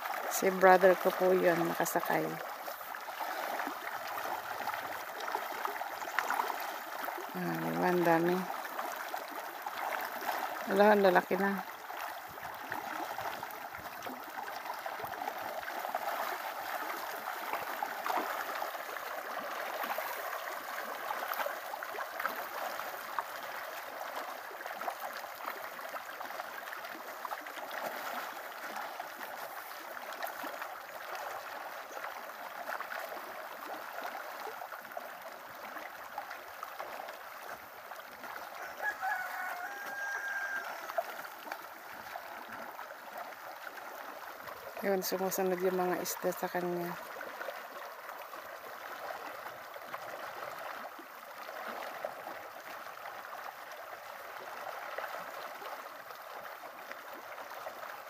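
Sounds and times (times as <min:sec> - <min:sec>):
fish splashing in pond: 0:00.0 - 0:58.0
rooster crowing: 0:38.6 - 0:41.1.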